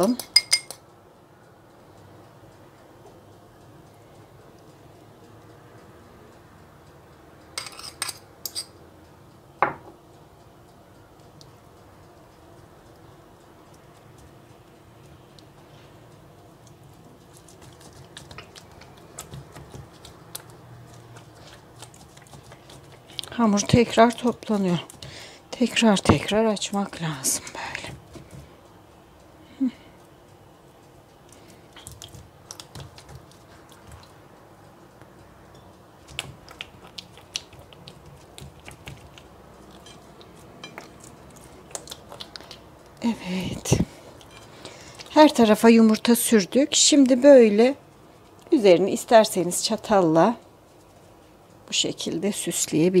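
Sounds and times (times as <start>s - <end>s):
sticky clicks and taps on dough: 16.6s - 21.1s, 31.3s - 34.1s.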